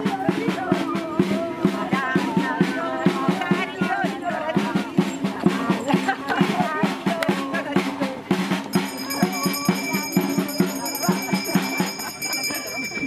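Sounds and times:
voices singing: 0:00.0 - 0:13.0
hand drum beating: 0:01.2 - 0:12.1
thin high tone: 0:08.8 - 0:13.0.

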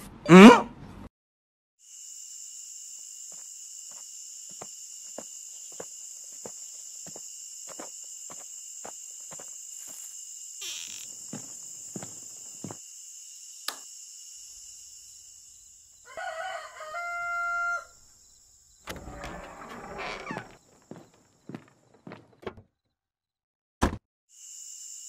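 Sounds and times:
rooster crowing: 0:16.0 - 0:18.0.

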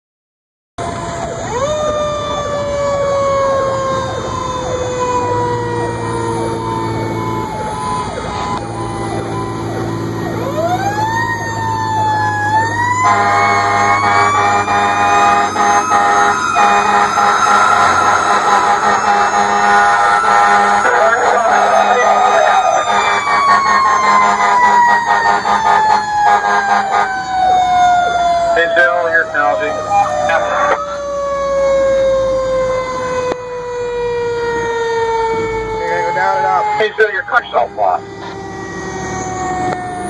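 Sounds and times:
truck engine: 0:00.8 - 0:40.0
multi-toned horn: 0:13.0 - 0:27.5.

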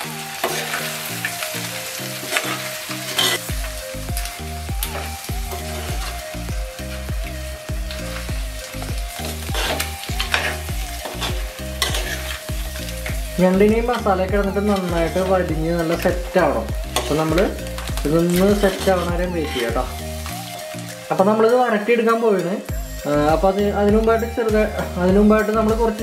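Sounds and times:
background music with bass: 0:00.0 - 0:26.0
food sizzling in a pot: 0:00.0 - 0:26.0
metal spoon scraping a pot: 0:09.3 - 0:13.2.

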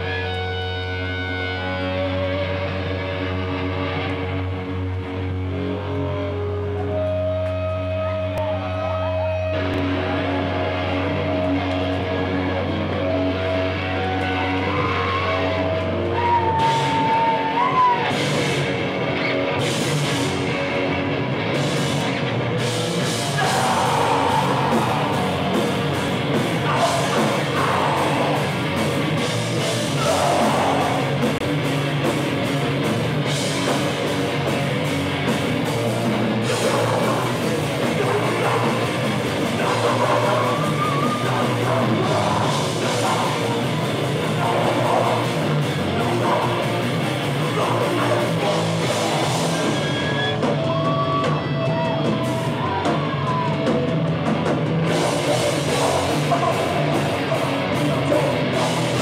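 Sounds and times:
bass guitar: 0:00.0 - 0:59.0
distorted guitars: 0:00.0 - 0:59.0
drums: 0:00.0 - 0:59.0
person yelling vocals: 0:23.2 - 0:25.6, 0:26.6 - 0:28.6, 0:29.9 - 0:31.2.

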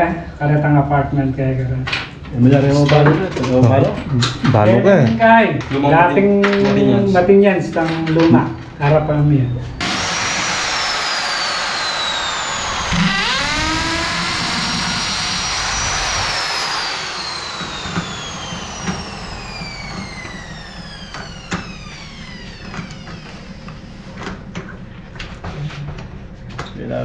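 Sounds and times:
electric drill boring into metal: 0:09.8 - 0:24.0.

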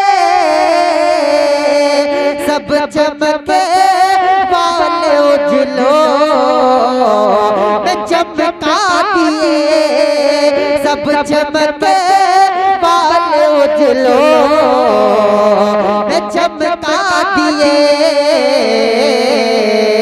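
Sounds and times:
man singing devotional song: 0:00.0 - 0:20.0.

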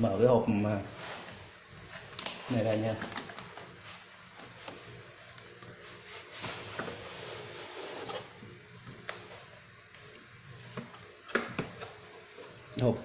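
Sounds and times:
cardboard scraping on cardboard: 0:05.9 - 0:08.4.

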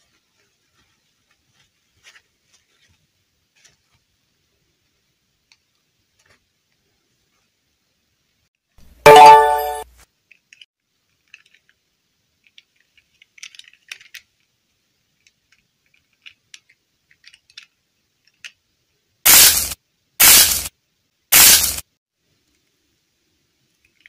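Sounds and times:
short pitched tone: 0:09.0 - 0:09.8
loud burst of noise: 0:19.3 - 0:20.7, 0:21.3 - 0:21.8.

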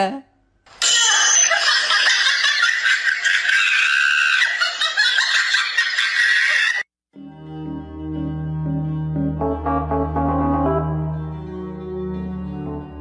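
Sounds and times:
shrill screaming sound effect: 0:00.8 - 0:01.7, 0:03.2 - 0:04.8
soft music: 0:07.2 - 0:13.0.

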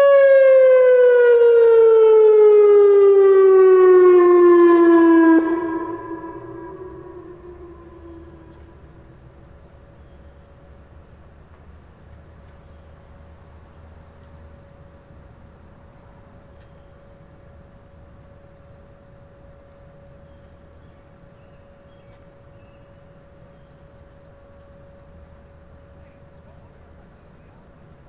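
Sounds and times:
distant warning siren: 0:00.0 - 0:28.0
insects chirping: 0:03.6 - 0:28.0
low rumble: 0:05.4 - 0:09.5.

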